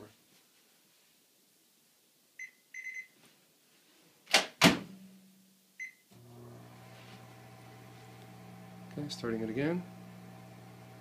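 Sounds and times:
keypad beeps: 2.4 - 3.1
microwave oven humming: 6.2 - 11.0.

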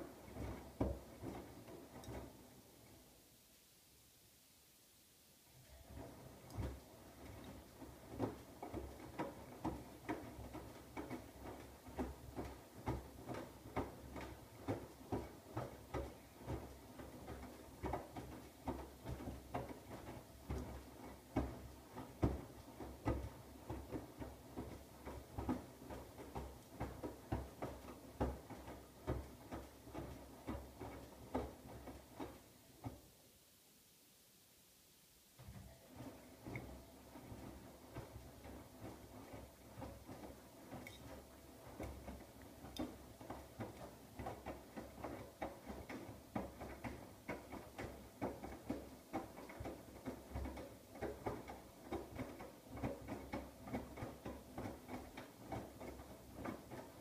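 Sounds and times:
washing machine motor hum: 0.0 - 3.0, 5.6 - 33.1, 35.4 - 57.0.

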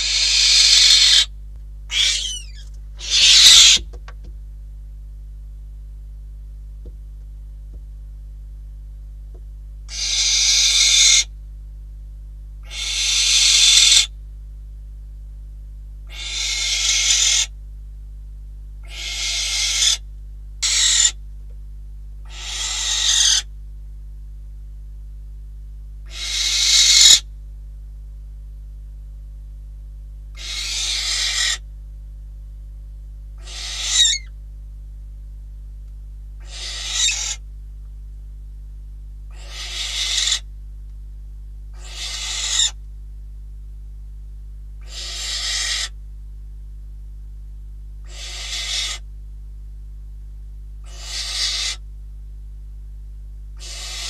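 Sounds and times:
owl hissing screeches: 0.0 - 1.3, 1.9 - 3.8, 9.9 - 11.3, 12.6 - 14.1, 16.1 - 17.5, 18.8 - 20.0, 20.6 - 21.2, 22.3 - 23.5, 26.1 - 27.3, 30.4 - 31.6, 33.4 - 34.3, 36.4 - 37.4, 39.3 - 40.5, 41.8 - 42.8, 44.8 - 46.0, 48.0 - 49.1, 50.8 - 51.8, 53.6 - 54.0
steady low hum: 0.0 - 54.0.

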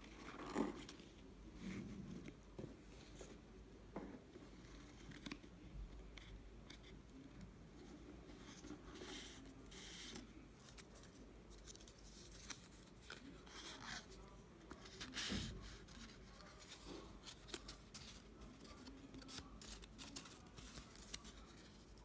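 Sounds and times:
paper rustling and scraping: 8.3 - 22.0.

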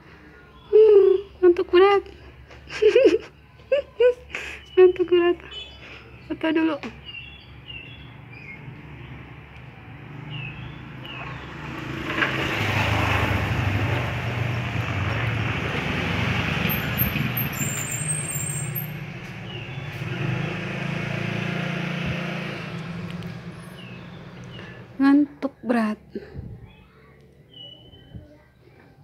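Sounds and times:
vehicle engine rumbling: 5.0 - 26.8.

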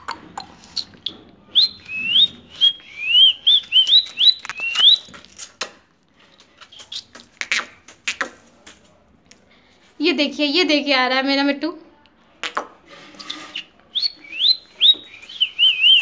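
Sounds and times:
parakeet chirping: 13.5 - 16.0.

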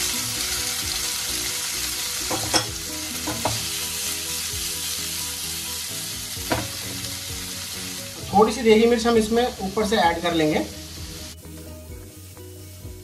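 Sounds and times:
paneer sizzling in hot oil: 0.0 - 13.0.

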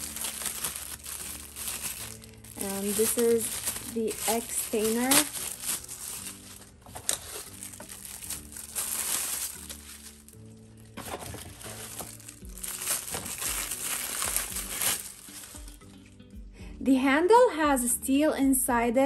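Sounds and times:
plastic bags crinkling: 0.0 - 16.0
soft background music: 0.0 - 19.0.

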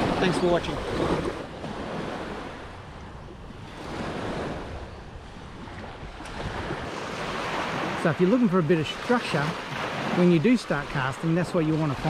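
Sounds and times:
wind on microphone: 0.0 - 8.0
small waves lapping on shore: 0.0 - 12.0.

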